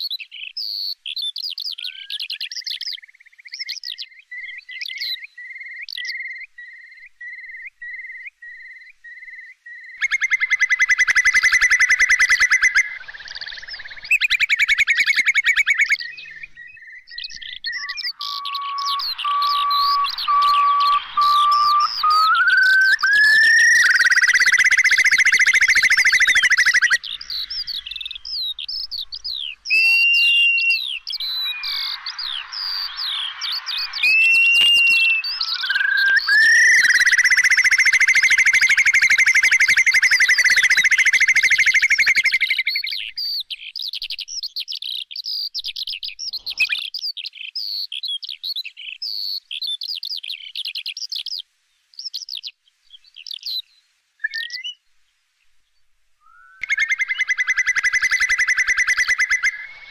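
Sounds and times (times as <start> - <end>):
high bird chirps and whistles: 0.6 - 51.3, 54.2 - 54.8, 56.2 - 59.9
curlew bubbling trill call: 4.4 - 43.2, 56.2 - 59.9.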